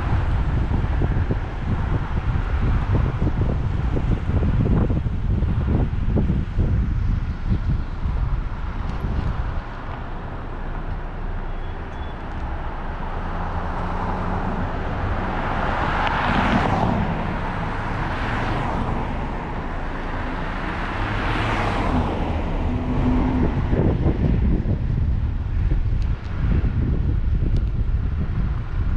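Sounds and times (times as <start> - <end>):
car road and engine rumble: 0.0 - 28.9
vehicles passing by: 0.0 - 28.9.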